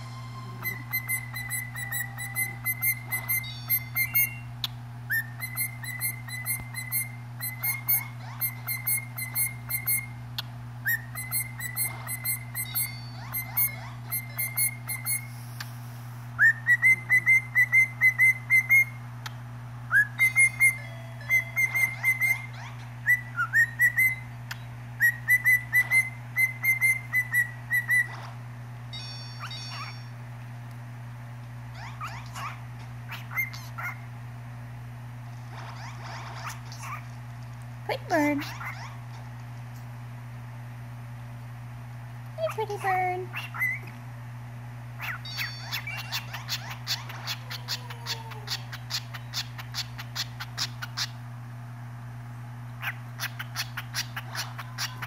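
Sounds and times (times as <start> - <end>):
cockatiel whistling: 0.0 - 10.2, 10.8 - 15.3, 16.4 - 19.0, 19.9 - 24.2, 25.0 - 28.2, 29.4 - 30.1, 31.9 - 34.0, 45.0 - 51.1.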